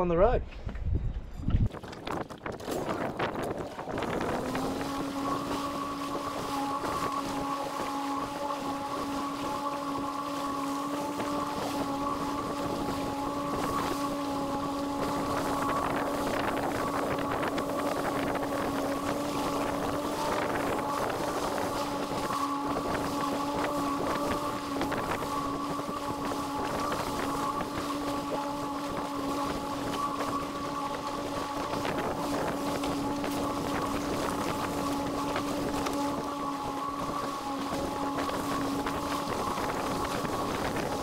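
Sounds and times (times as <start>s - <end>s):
wind buffeting microphone: 0.0s - 41.0s
outboard motor humming: 1.6s - 41.0s.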